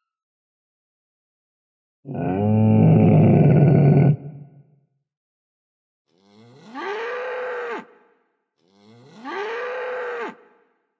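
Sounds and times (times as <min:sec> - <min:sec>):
cow mooing: 0:08.7 - 0:10.4.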